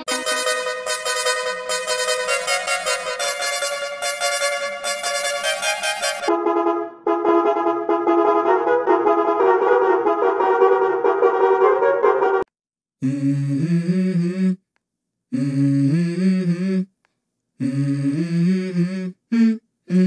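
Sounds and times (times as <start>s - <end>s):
bus horn blasts: 0.0s - 12.5s
wavering bus horn chord: 0.0s - 12.5s.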